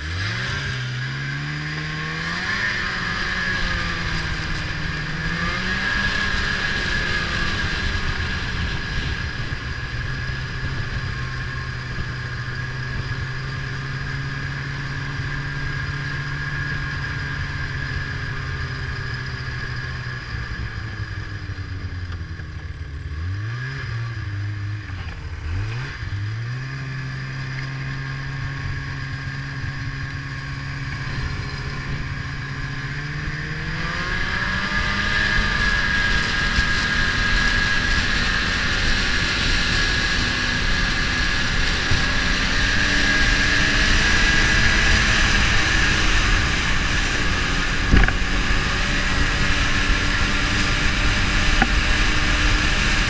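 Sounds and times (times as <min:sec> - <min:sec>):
snowmobile engine: 0:00.0 - 0:53.0.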